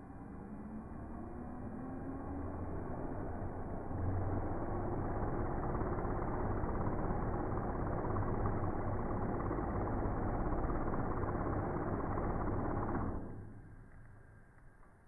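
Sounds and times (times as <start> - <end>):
drone propellers spinning: 0.0 - 13.6.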